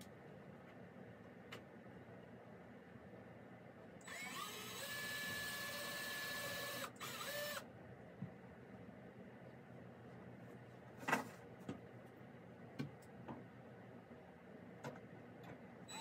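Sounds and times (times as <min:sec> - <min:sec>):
power drill boring into wood: 0:04.1 - 0:07.6.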